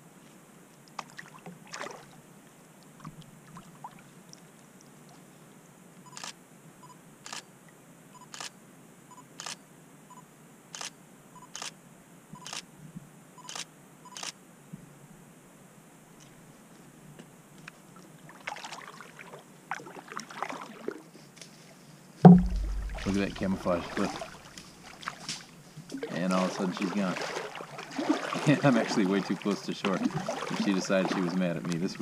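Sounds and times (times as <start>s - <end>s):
camera shutter clicks: 13.5s - 14.4s
small knocks: 22.3s - 23.6s.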